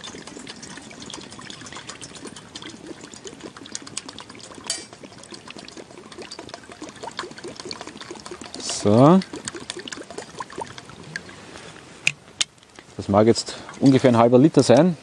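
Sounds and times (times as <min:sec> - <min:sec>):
water pouring into pot: 0:00.0 - 0:11.4
water hissing on hot pot: 0:00.0 - 0:12.1.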